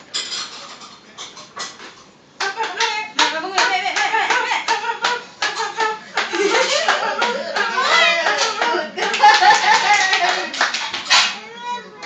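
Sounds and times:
hand clapping: 2.4 - 11.4
excited voices: 2.5 - 10.7.

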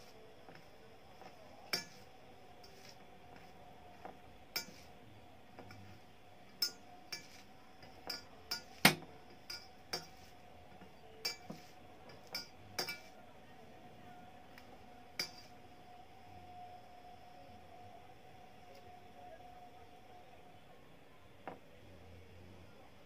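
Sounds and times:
faint steady hum: 0.0 - 23.0
clinks on steel plate: 1.7 - 2.0, 4.6 - 4.9, 6.5 - 10.2, 11.2 - 13.2, 15.2 - 15.5.

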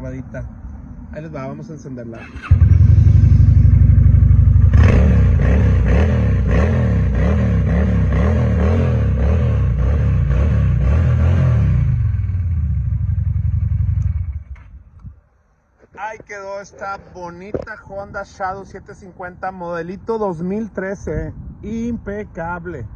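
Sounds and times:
motorcycle engine revving: 2.2 - 14.8
motorcycle engine idling: 2.4 - 6.6, 12.0 - 14.5.

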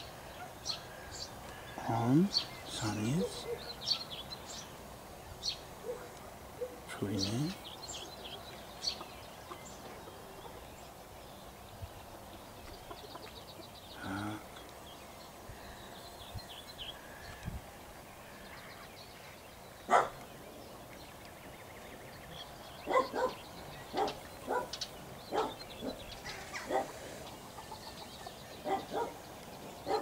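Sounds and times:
dog barking: 3.2 - 3.7, 5.8 - 6.8, 19.9 - 20.2, 22.9 - 26.0, 26.6 - 27.0, 28.6 - 29.2.

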